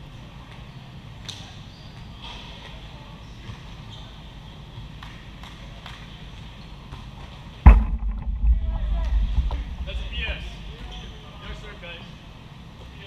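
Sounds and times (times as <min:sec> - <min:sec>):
low hum: 0:07.7 - 0:11.4.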